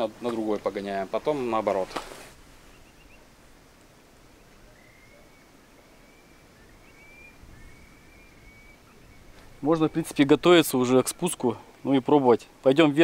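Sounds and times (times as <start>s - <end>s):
bird whistling call: 2.7s - 3.3s, 4.4s - 10.0s.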